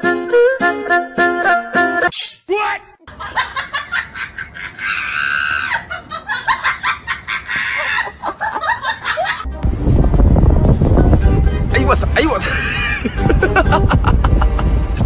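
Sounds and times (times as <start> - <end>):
person laughing: 3.1 - 9.5, 12.4 - 14.7.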